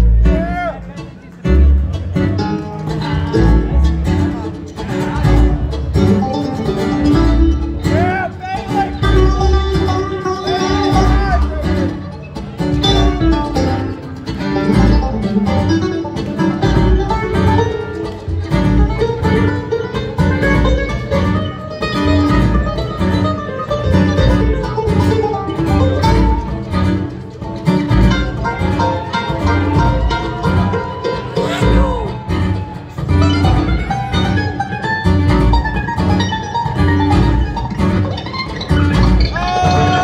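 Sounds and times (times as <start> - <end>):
banjo: 0.0 - 40.0
picked acoustic guitar: 0.0 - 40.0
steady bass rhythm: 0.0 - 40.0.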